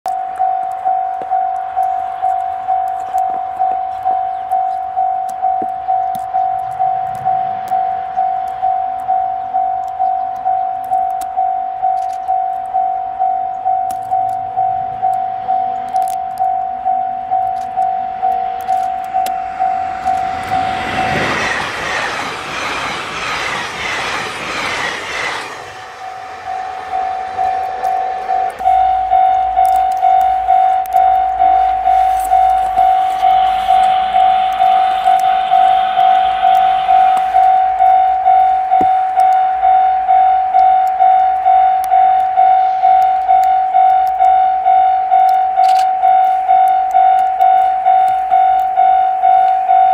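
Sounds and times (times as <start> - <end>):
level crossing alarm ringing: 0.0 - 49.9
electric train rushing past: 6.6 - 9.6, 17.0 - 49.9.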